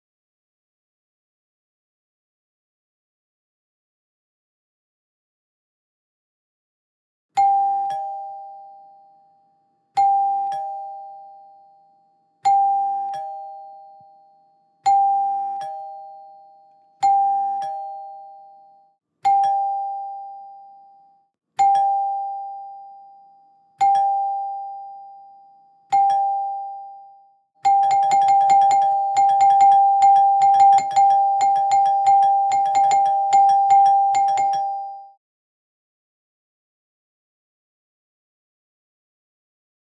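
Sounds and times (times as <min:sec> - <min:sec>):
two-tone doorbell chime: 0:07.4 - 0:35.2.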